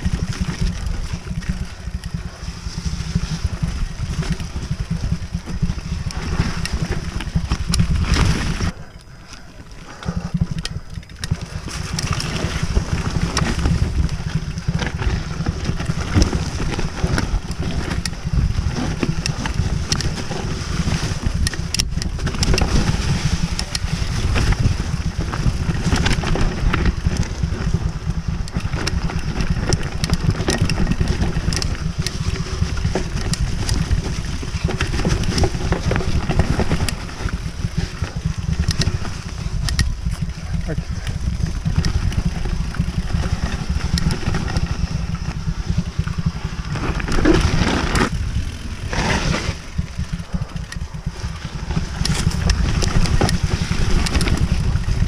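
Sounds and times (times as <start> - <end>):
bike rattling over bumps: 0.0 - 55.0
tyres rumbling on dirt: 0.0 - 55.0.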